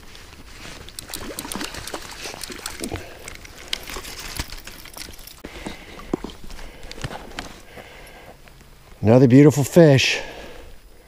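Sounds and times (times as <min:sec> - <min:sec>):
fish thrashing and splashing: 0:00.8 - 0:05.4.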